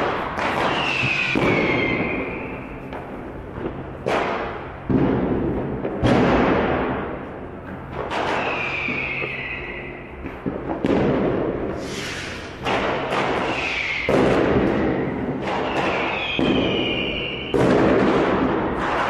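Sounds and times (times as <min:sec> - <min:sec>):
firework bangs echoing: 0:00.0 - 0:19.0
high falling whistles: 0:00.6 - 0:02.8, 0:08.3 - 0:10.2, 0:13.4 - 0:17.6.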